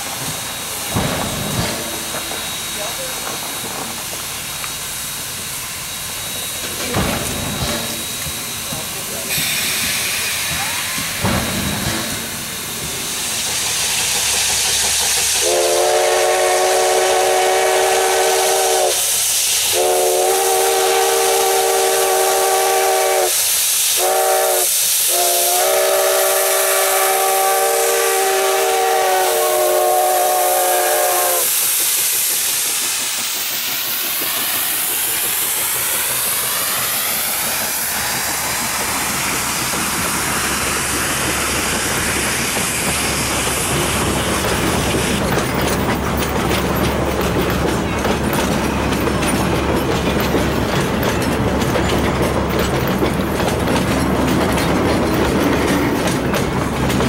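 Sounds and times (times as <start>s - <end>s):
passing train rumble: 0.0s - 57.0s
steam hiss: 0.0s - 57.0s
steam locomotive chime whistle: 15.2s - 31.6s.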